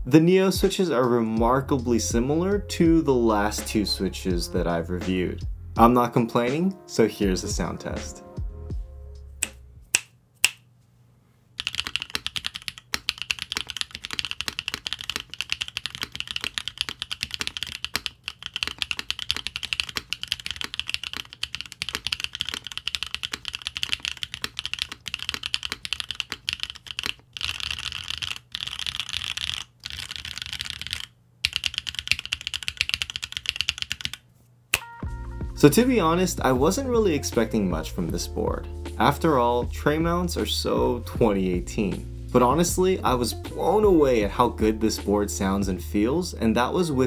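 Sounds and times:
fast typing on mechanical keyboard: 0:11.6 - 0:34.2.

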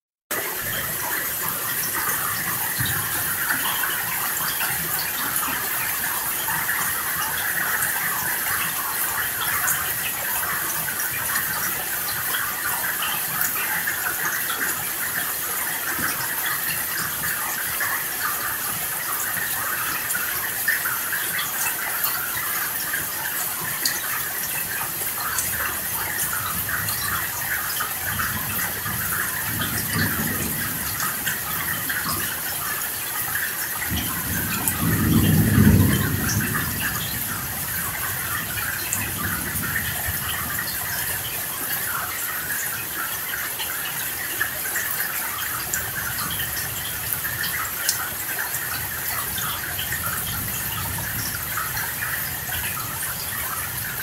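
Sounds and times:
steady rain: 0:00.3 - 0:54.0
distant thunder rumble: 0:28.2 - 0:32.4, 0:33.8 - 0:41.0.

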